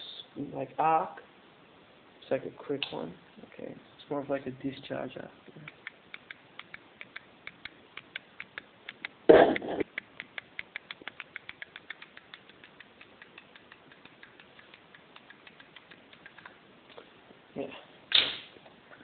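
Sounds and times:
fast regular electrical clicks: 5.4 - 17.0.

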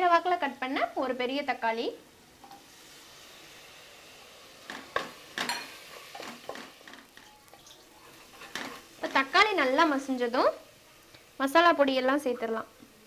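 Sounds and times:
tomatoes sizzling in oil: 0.0 - 13.0
wooden spatula stirring: 4.7 - 9.3.

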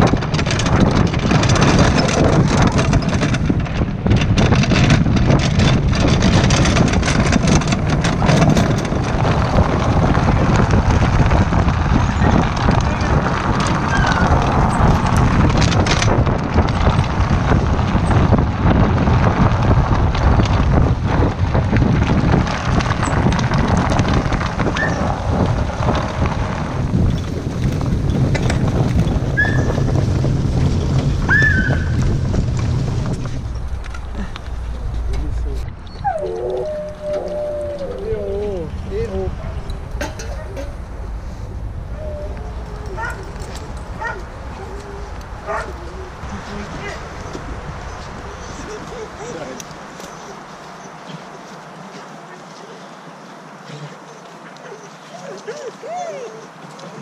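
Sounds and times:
clattering and knocking of rig: 0.0 - 17.2, 27.0 - 31.2
cart rolling over dirt trail: 0.0 - 57.0.

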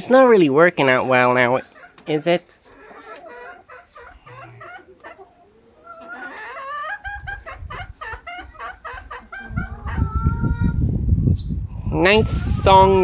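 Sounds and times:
hen clucking: 0.8 - 10.8.

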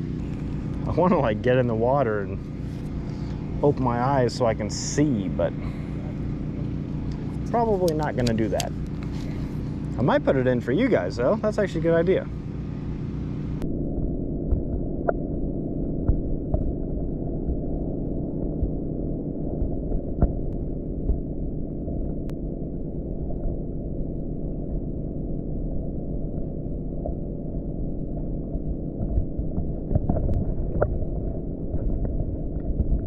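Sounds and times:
underwater rumble and hum: 0.0 - 33.0.

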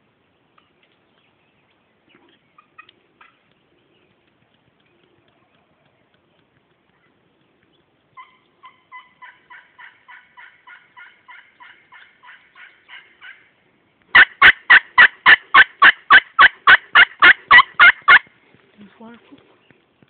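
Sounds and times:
turkey call yelps: 2.6 - 3.4, 8.2 - 13.5, 14.1 - 18.3.

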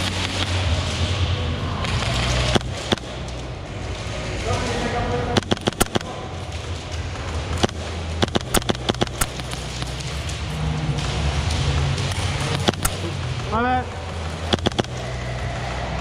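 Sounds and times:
airsoft gunshots: 0.0 - 1.1, 1.8 - 3.2, 5.3 - 6.4, 7.5 - 10.1, 12.1 - 13.2, 14.4 - 15.1
steady low hum: 0.0 - 16.0.

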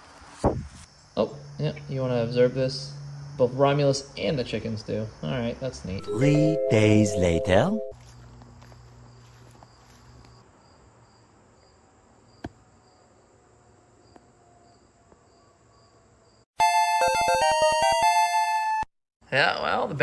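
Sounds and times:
insect chirping: 0.8 - 5.8, 8.1 - 16.4.

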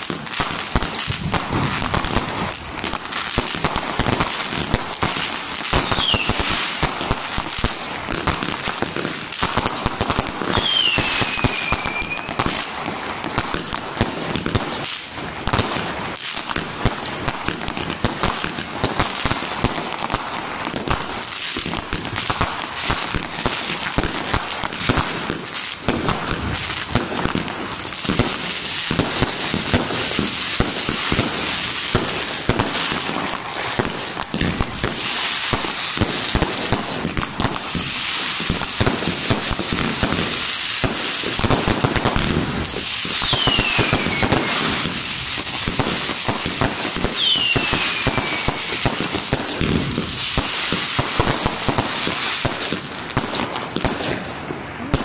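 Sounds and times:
falling firework whistles: 0.0 - 2.3, 5.6 - 6.8, 10.4 - 12.6, 37.6 - 52.5
fireworks crackling and banging: 0.0 - 55.0.

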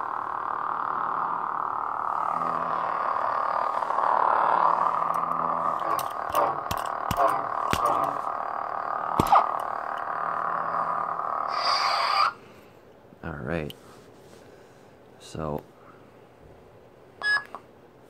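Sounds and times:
lightsaber blade-off sound: 0.0 - 10.9
lightsaber electric hum: 0.0 - 13.8
sharp lightsaber hits: 5.8 - 8.3, 9.1 - 9.8.

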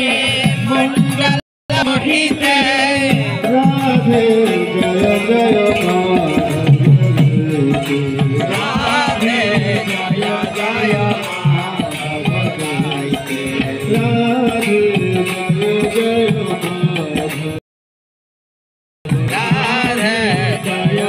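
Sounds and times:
hand drum: 0.0 - 17.6
rattling percussion: 0.0 - 17.6, 19.1 - 21.0.

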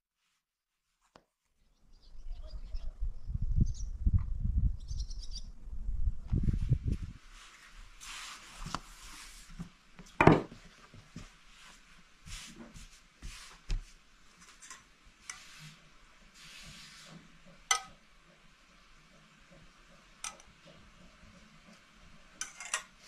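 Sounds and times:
hands brushing over dough: 6.3 - 9.8, 10.6 - 17.6
rolling pin knocking on wood: 10.2 - 10.6
metal spoon clinking enamel bowl: 17.7 - 18.0, 22.4 - 22.9.

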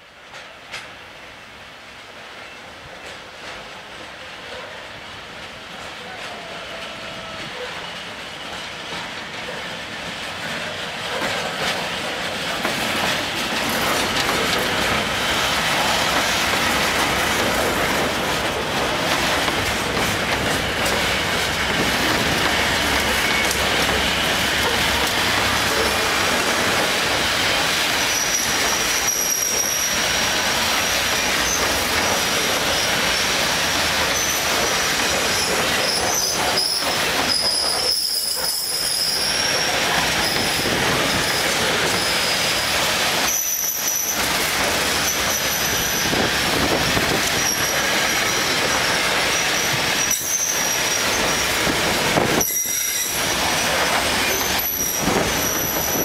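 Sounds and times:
train wagons rumbling on rails: 0.0 - 56.0
high metallic wheel squeal: 28.0 - 33.4, 34.1 - 44.4, 45.0 - 46.2, 47.3 - 51.6, 52.4 - 53.3, 54.2 - 56.0.

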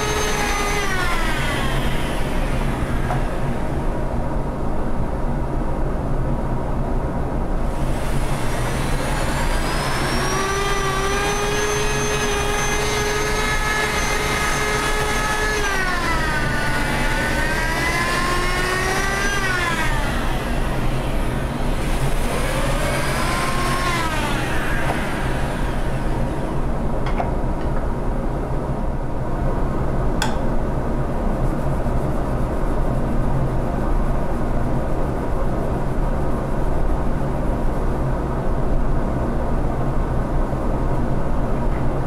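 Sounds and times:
electric drill sanding wood: 0.0 - 3.9, 7.8 - 26.8
dust collector humming: 0.0 - 4.9, 7.6 - 27.7.

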